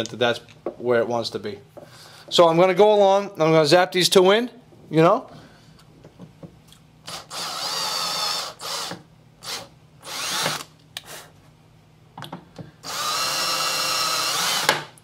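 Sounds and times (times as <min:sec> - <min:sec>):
power drill driving screws: 0:07.1 - 0:10.7, 0:12.8 - 0:14.9.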